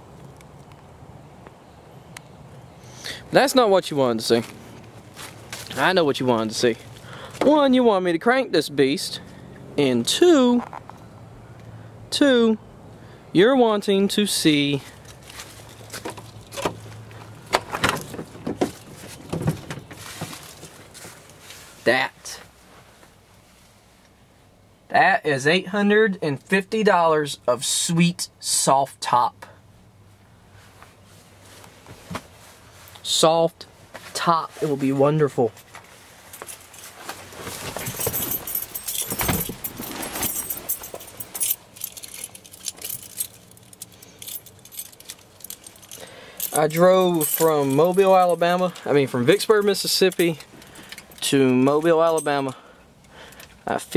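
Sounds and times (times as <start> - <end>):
truck door knocks and clicks: 17.5 - 19.9
keys jangling: 37.8 - 48.9.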